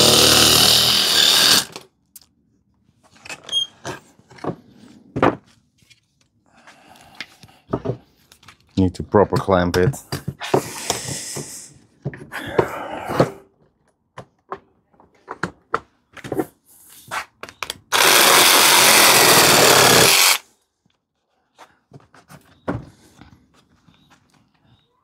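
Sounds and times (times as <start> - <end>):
reciprocating saw cutting: 0.0 - 1.8, 17.9 - 20.4.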